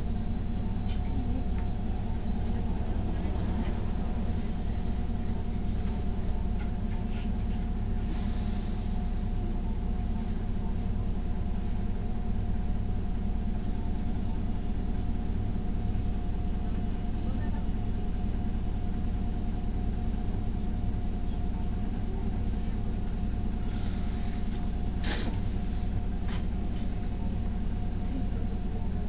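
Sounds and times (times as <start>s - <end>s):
bus engine running at low revs: 0.0s - 29.0s
faint engine whine: 0.0s - 29.0s.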